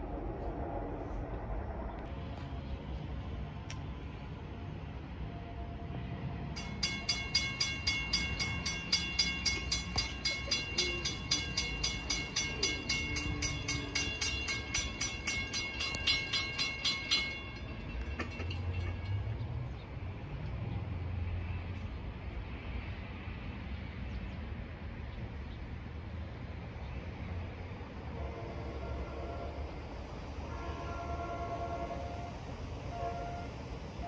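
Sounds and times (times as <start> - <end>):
railroad crossing bell ringing: 4.7 - 20.3.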